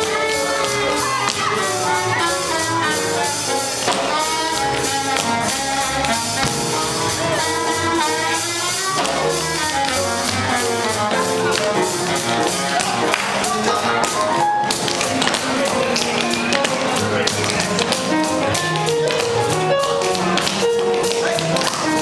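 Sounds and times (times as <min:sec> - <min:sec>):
drum kit: 0:00.0 - 0:22.0
jazz big band playing: 0:00.0 - 0:22.0
saxophones and brass melody: 0:00.0 - 0:22.0.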